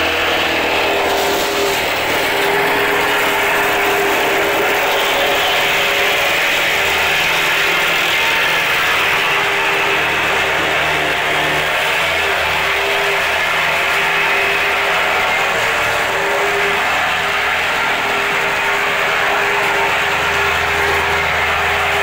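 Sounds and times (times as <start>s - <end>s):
plate compactor engine running: 0.0s - 22.0s.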